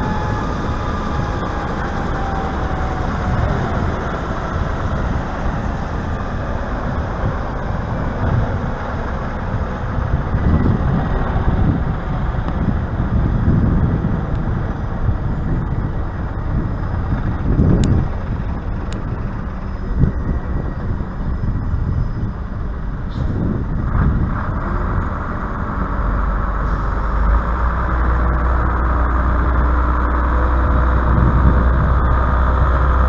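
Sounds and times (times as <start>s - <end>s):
helicopter running: 0.0s - 33.0s.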